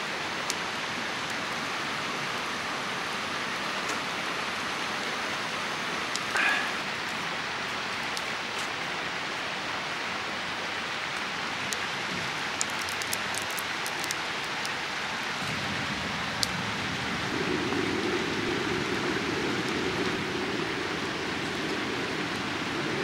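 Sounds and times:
stew bubbling and hissing: 0:06.2 - 0:07.0.

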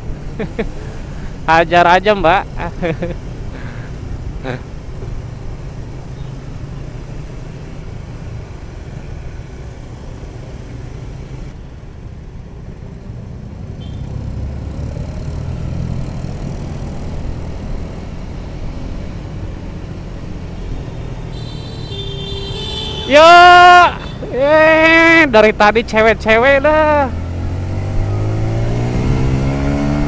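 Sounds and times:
road noise: 0:00.0 - 0:30.0.

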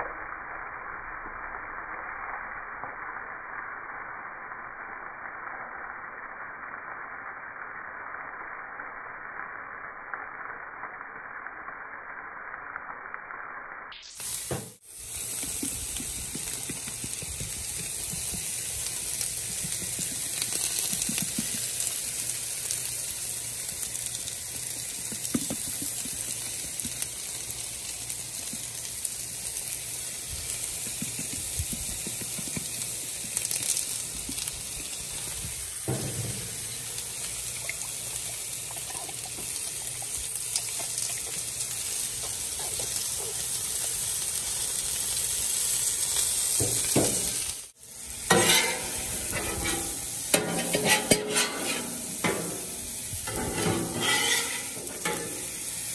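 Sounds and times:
food sizzling on griddle: 0:00.0 - 0:55.9
metal spatula scraping griddle: 0:48.1 - 0:55.9.

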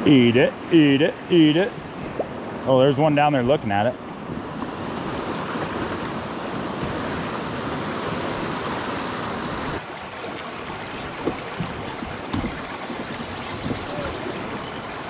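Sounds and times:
river water rushing: 0:04.0 - 0:15.0.

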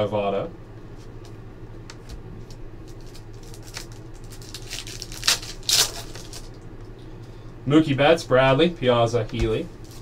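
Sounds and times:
wrapper crinkling: 0:02.8 - 0:06.6.

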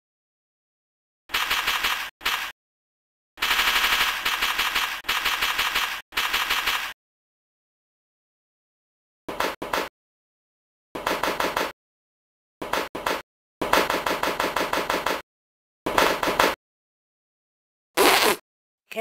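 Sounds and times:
cartoon rapid-fire gunshots: 0:01.3 - 0:02.5, 0:03.4 - 0:07.0.

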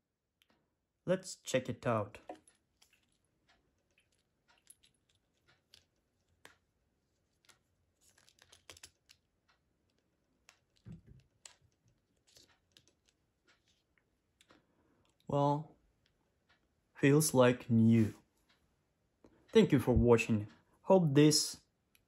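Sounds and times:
watch band clicks and rubbing: 0:02.3 - 0:14.6.

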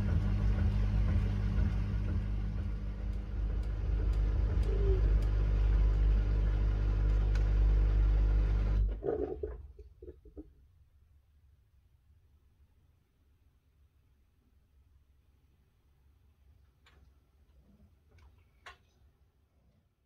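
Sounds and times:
washing machine running: 0:00.0 - 0:09.6.

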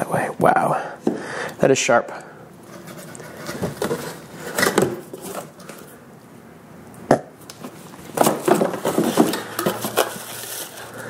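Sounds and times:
clatter and plastic rustling: 0:02.6 - 0:06.0, 0:07.6 - 0:11.0.

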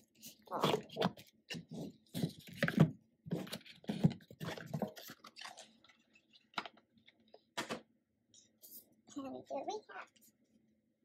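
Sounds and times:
cardboard box and paper handled: 0:00.6 - 0:06.6.

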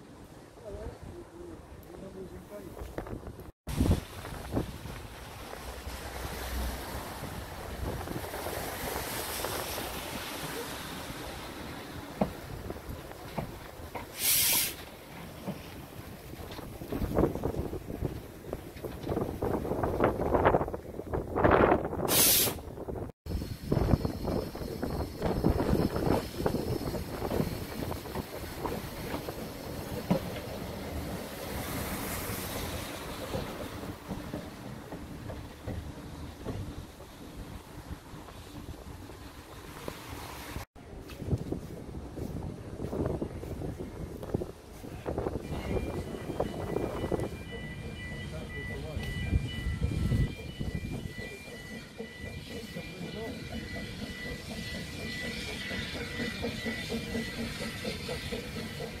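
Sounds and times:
wind noise on microphone: 0:02.7 - 0:05.2, 0:07.0 - 0:10.2, 0:16.4 - 0:29.5, 0:40.8 - 0:47.5, 0:49.0 - 0:51.1
steam locomotive hissing: 0:05.2 - 0:20.6, 0:21.9 - 0:39.9, 0:41.6 - 0:59.0
steam hiss: 0:14.0 - 0:15.0, 0:22.0 - 0:22.7, 0:23.3 - 0:33.9, 0:51.6 - 0:59.0.

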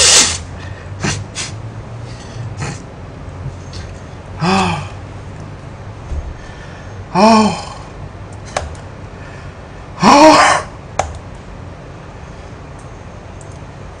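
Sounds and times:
man groaning: 0:04.4 - 0:05.0, 0:07.1 - 0:07.9, 0:10.0 - 0:10.7.

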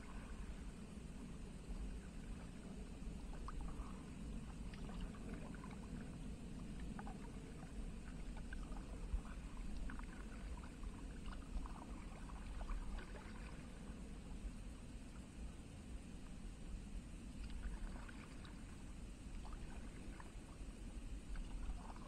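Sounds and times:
low steady rumble: 0:00.0 - 0:22.0
kayak paddle splashing water: 0:03.3 - 0:13.9, 0:17.4 - 0:20.6, 0:21.2 - 0:22.0.

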